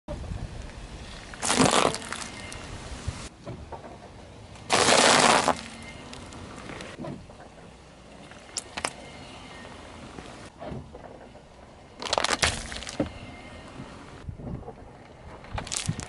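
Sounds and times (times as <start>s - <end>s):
tyre crushing foil-wrapped chocolate: 1.4s - 2.3s, 4.7s - 5.8s, 12.0s - 13.0s.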